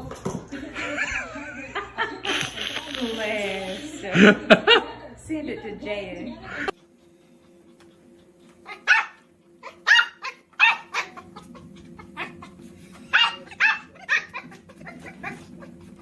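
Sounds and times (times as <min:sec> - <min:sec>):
puppy yipping: 0:08.6 - 0:11.2, 0:13.1 - 0:15.6.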